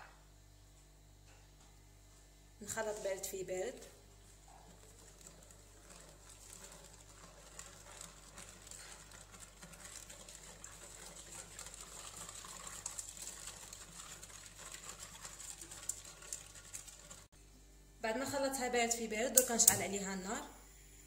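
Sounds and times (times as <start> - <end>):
whisk beating in a metal saucepan: 4.3 - 17.3.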